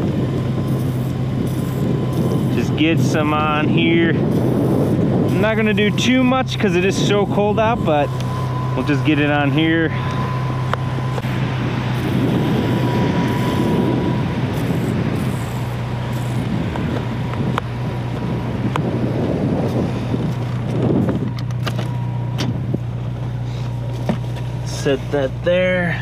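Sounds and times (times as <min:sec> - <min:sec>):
car engine idling: 0:00.0 - 0:26.0
foam sprayer hissing: 0:11.2 - 0:17.2.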